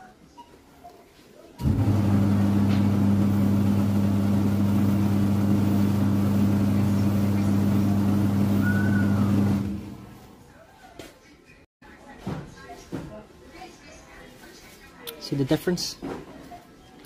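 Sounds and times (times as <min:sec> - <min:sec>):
buffing machine motor whirring: 0:01.6 - 0:10.3.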